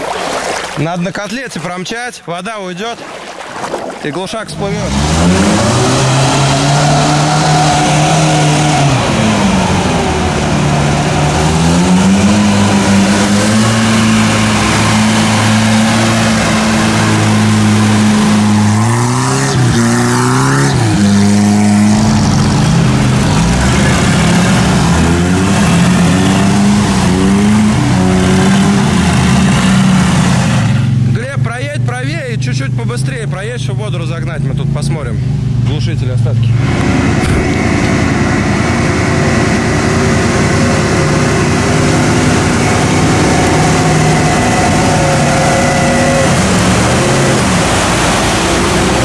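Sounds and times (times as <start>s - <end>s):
off-road vehicle engine revving: 4.2s - 49.0s.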